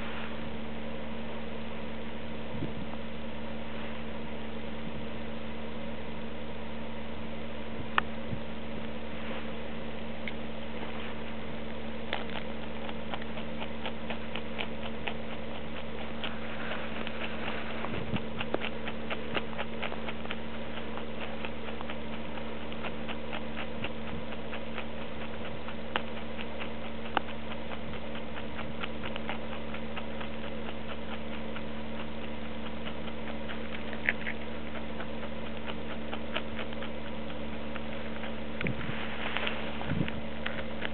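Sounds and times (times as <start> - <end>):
steady low hum: 0.0 - 40.9
hare chewing food: 10.0 - 40.9.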